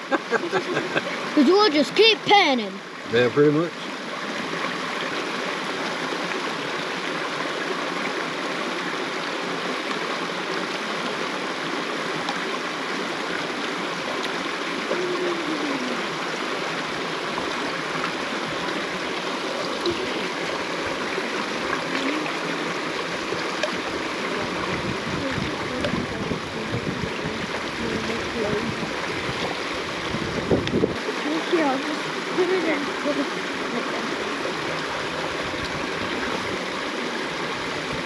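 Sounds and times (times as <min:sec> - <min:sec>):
creek water flowing: 0:00.0 - 0:38.0.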